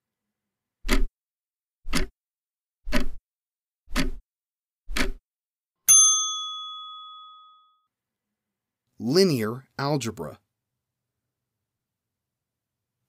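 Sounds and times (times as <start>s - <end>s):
clock ticking: 0.8s - 1.1s, 1.9s - 2.1s, 2.9s - 3.2s, 3.9s - 4.2s, 4.9s - 5.2s
bright bell ding: 5.9s - 7.9s.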